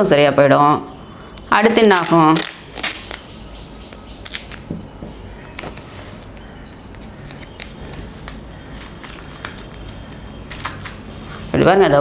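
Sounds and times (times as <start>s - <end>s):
tape and paper crinkling: 1.8s - 3.3s, 3.9s - 4.7s, 5.4s - 11.2s.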